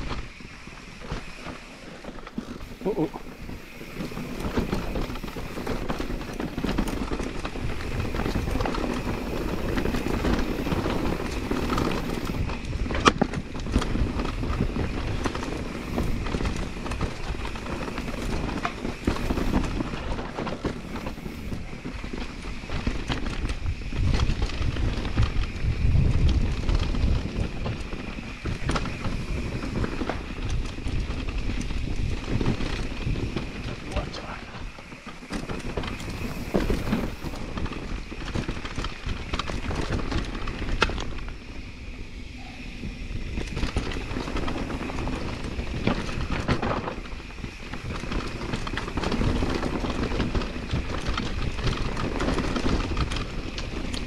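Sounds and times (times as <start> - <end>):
tyres crunching over stones: 31.9 - 41.1.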